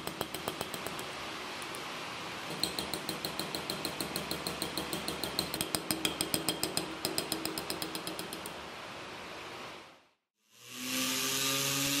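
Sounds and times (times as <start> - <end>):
hammer tapping metal punch: 0.0 - 1.2, 2.5 - 8.6.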